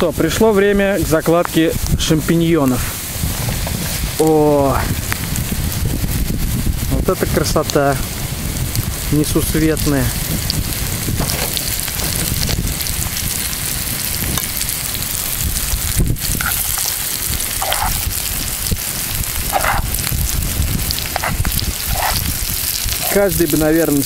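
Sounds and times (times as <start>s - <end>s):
food sizzling in oil: 0.0s - 24.0s
wind rumbling on microphone: 0.0s - 24.0s
stirring in a pan: 10.6s - 24.0s.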